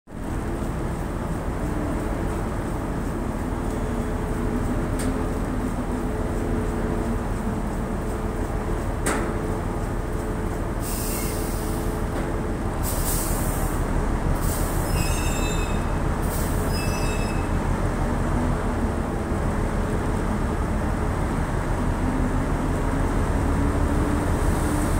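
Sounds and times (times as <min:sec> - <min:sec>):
high-pitched metallic squealing: 0:14.6 - 0:17.6.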